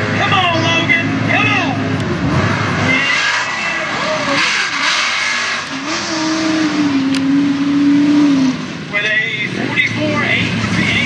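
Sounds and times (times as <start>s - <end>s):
truck engine revving hard: 0.0s - 11.0s.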